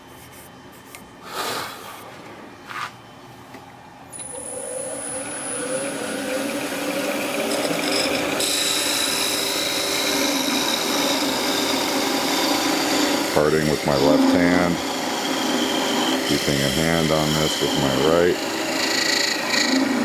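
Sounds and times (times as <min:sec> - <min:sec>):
wood lathe starting up: 0:04.1 - 0:20.0
tool scraping spinning wood: 0:05.4 - 0:20.0.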